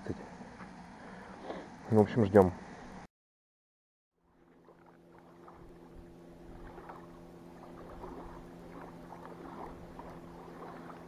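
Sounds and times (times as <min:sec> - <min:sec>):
distant motor hum: 0:04.2 - 0:11.0
water splashing: 0:04.3 - 0:11.0.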